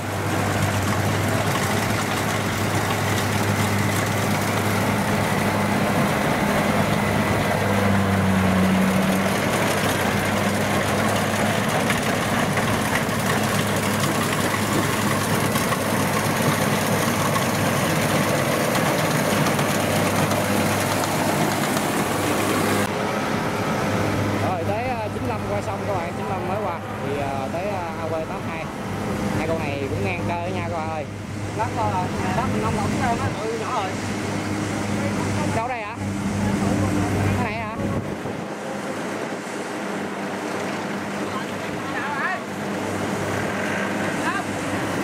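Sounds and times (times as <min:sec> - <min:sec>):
combine harvester diesel engine: 0:00.0 - 0:45.0.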